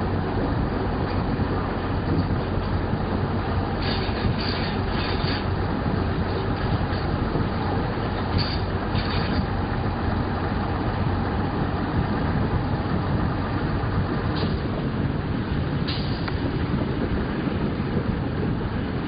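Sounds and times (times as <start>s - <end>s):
train rumbling on track: 0.0s - 19.0s
hissing bursts: 3.8s - 5.6s, 8.3s - 9.5s.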